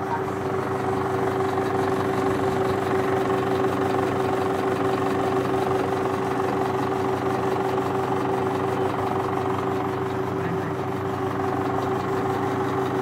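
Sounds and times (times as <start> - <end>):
film projector hum and clatter: 0.0 - 13.0.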